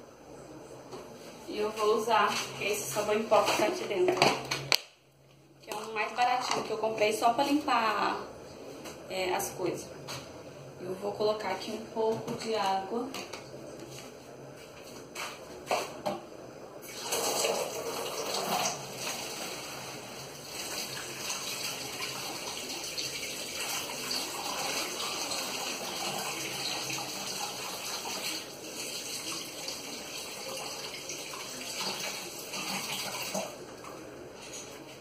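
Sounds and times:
tap water running into container: 16.8s - 33.6s.

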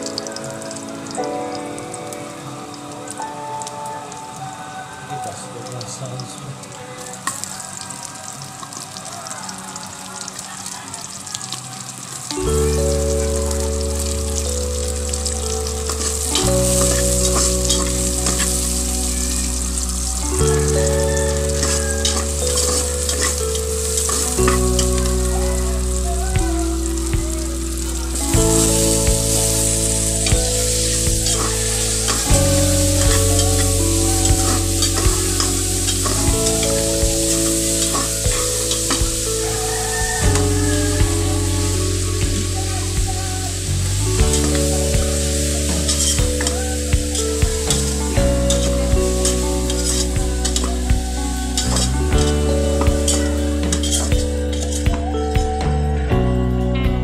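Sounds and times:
background music with sustained chords: 0.0s - 57.0s
onions sizzling in hot oil: 6.9s - 55.1s
spatula scraping pot: 49.2s - 50.7s, 53.1s - 54.8s
spatula scraping a metal pot: 53.8s - 54.8s.

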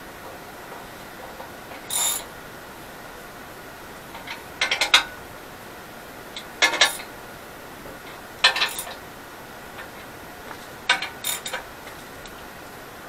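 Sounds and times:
hand ratchet clicking: 10.9s - 11.6s.

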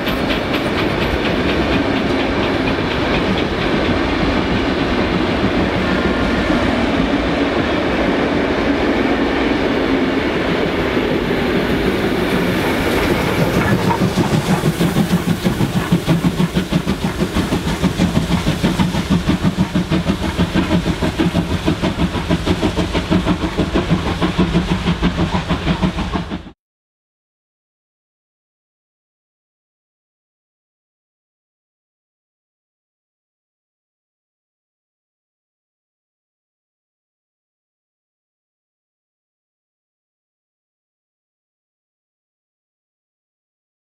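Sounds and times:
train wheels clicking over rail joints: 0.0s - 7.4s, 9.3s - 26.6s
steam locomotive chuffing: 0.0s - 26.6s.

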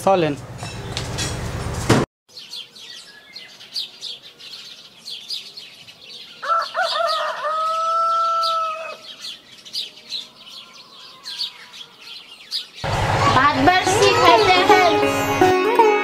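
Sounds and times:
small birds chirping: 2.3s - 14.5s
rooster crowing: 6.4s - 9.1s.

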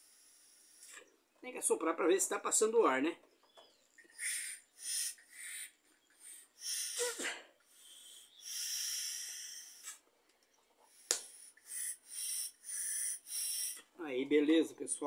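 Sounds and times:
air blown through valve hissing: 4.1s - 10.0s, 10.9s - 13.9s.

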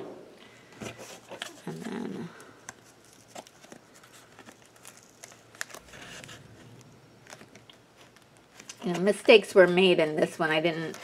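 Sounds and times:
paper rustling: 2.7s - 9.4s.

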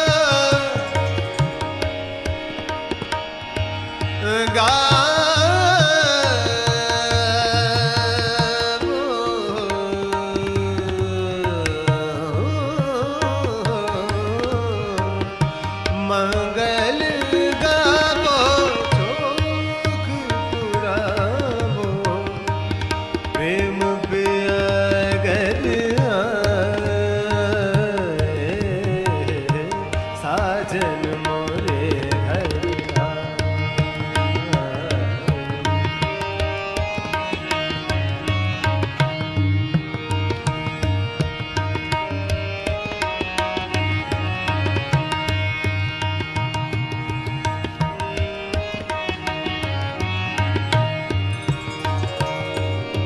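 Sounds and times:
tabla strokes: 0.0s - 53.0s
person singing classical vocals: 4.2s - 22.4s.

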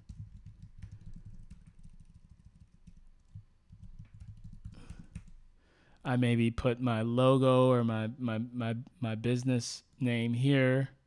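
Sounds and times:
keyboard typing: 0.0s - 5.4s.

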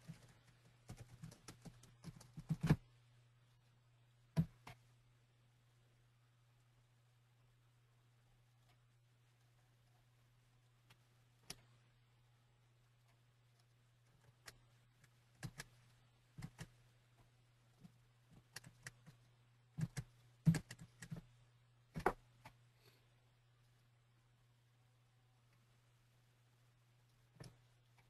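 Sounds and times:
low electrical hum: 0.0s - 28.0s
computer clicks and taps: 19.8s - 21.2s.

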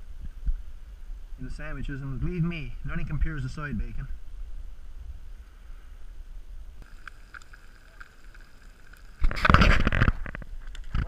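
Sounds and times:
bacon sizzling in a pan: 6.8s - 9.5s.

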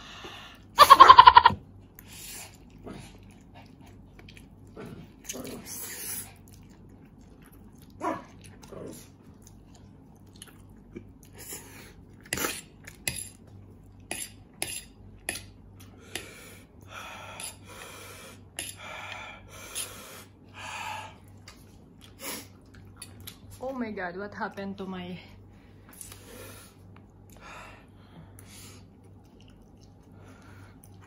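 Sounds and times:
chewing: 1.8s - 14.6s, 21.2s - 23.6s, 28.3s - 31.0s.

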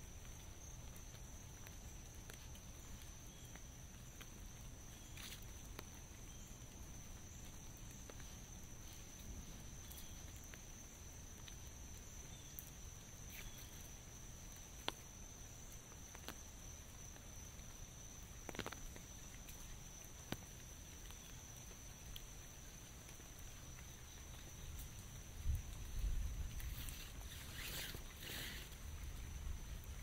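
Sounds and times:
raindrops tapping on umbrella: 15.7s - 30.0s.

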